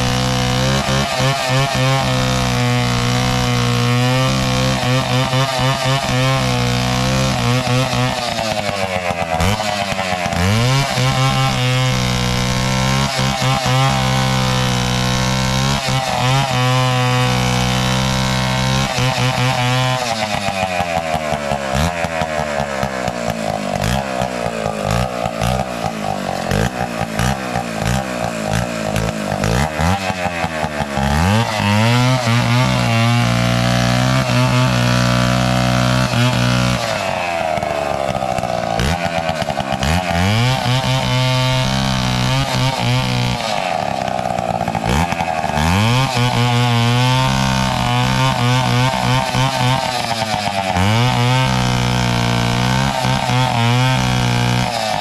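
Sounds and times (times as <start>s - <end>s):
chainsaw cutting wood: 0.0s - 55.0s.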